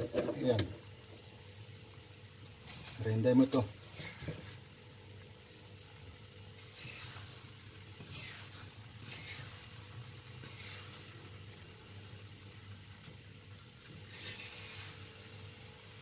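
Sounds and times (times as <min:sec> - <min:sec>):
wooden spatula scraping frying pan: 0:02.4 - 0:04.7, 0:06.6 - 0:11.6, 0:13.8 - 0:15.4.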